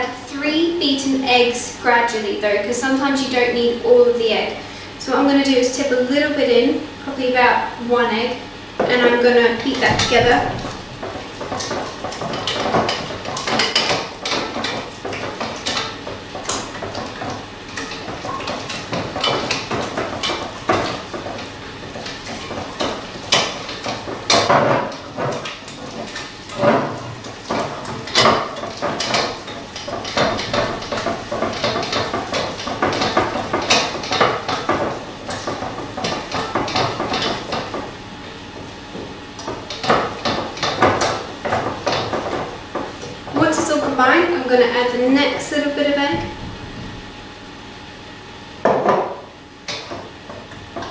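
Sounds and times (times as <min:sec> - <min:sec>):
whisk clinking and scraping pan: 0:09.8 - 0:37.9.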